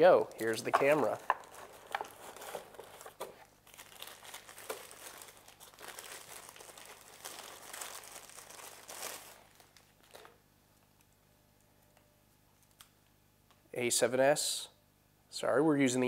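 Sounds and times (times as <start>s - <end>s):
plastic wrapping crinkling: 0.3s - 10.4s.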